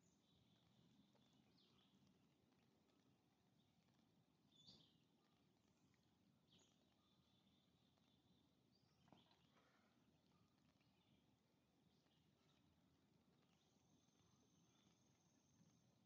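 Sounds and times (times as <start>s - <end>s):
faint high chirps: 3.8s - 16.0s.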